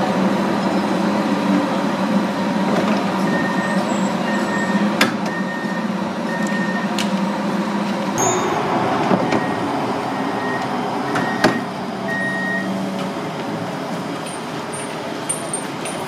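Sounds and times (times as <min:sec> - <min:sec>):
train humming: 0:07.2 - 0:14.7
platform bustle: 0:08.1 - 0:13.3
short high door warning beeps: 0:08.2 - 0:12.7.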